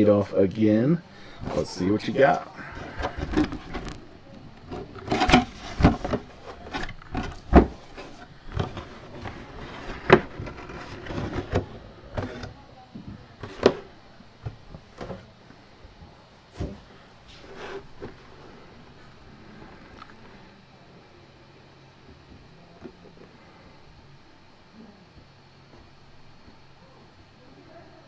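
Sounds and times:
cardboard box rustling: 0:01.4 - 0:12.6.

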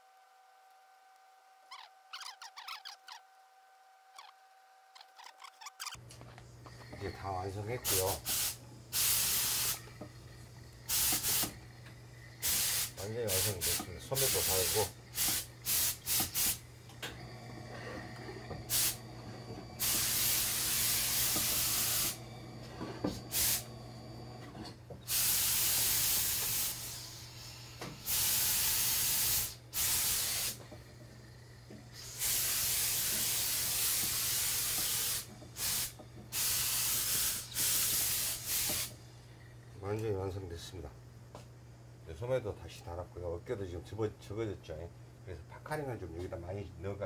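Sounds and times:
steady low hum: 0:05.9 - 0:25.1, 0:30.4 - 0:34.2, 0:37.4 - 0:47.0
steam iron hissing: 0:06.8 - 0:39.0.

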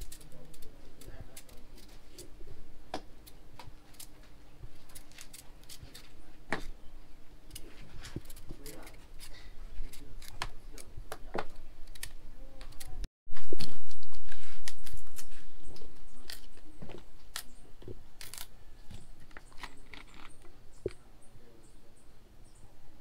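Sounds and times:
knife peeling banana skin: 0:11.8 - 0:16.6.

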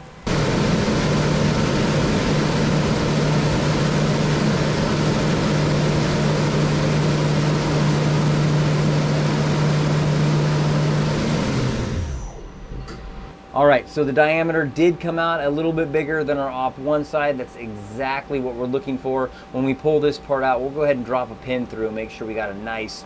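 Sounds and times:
lathe low hum: 0:00.0 - 0:23.0.

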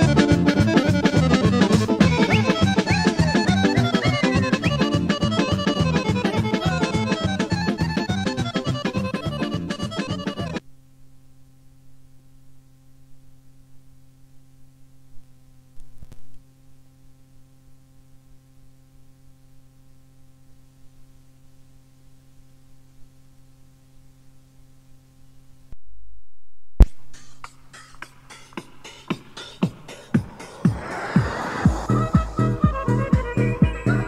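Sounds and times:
tape playback hum: 0:00.0 - 0:25.8, 0:26.8 - 0:34.0
low rumble: 0:30.1 - 0:34.0.

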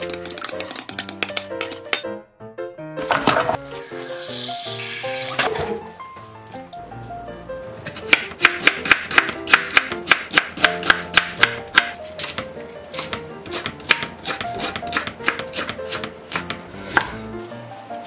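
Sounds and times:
background music: 0:00.0 - 0:18.0
knife chopping on cutting board: 0:07.8 - 0:12.4, 0:13.0 - 0:17.2.

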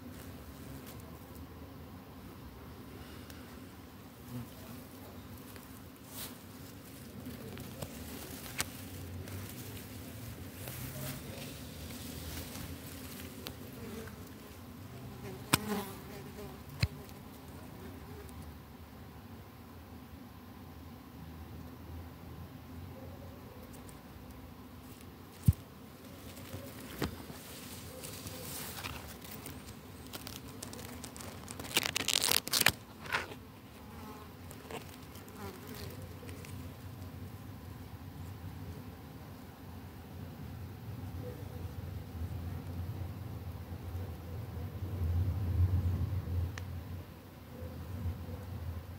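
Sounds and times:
grass rustling against microphone: 0:00.0 - 0:18.6, 0:23.6 - 0:40.8
flying insect buzzing: 0:03.3 - 0:18.4, 0:24.8 - 0:38.0.

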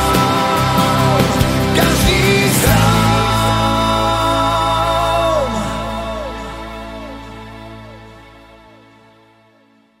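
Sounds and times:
pop song music: 0:00.0 - 0:09.3.

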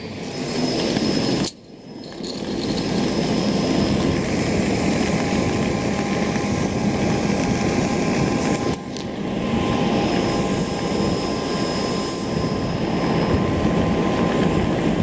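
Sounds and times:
jet engine noise with whine: 0:00.0 - 0:15.0.

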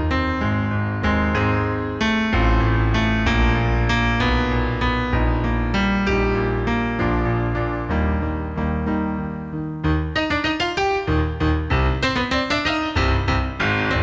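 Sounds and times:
piano chords over deep bass: 0:00.0 - 0:14.0.

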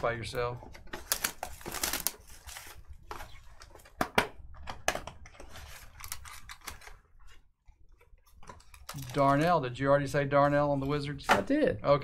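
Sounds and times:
plastic wrapping crinkling: 0:00.8 - 0:03.9, 0:05.2 - 0:07.5, 0:08.2 - 0:09.6.

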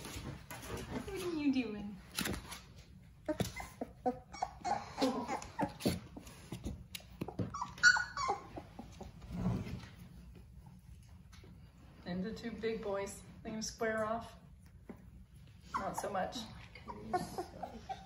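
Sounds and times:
puppies whimpering and squeaking: 0:02.9 - 0:09.8, 0:15.4 - 0:18.0
puppy squealing: 0:03.2 - 0:06.2, 0:07.2 - 0:09.1, 0:15.7 - 0:18.0.

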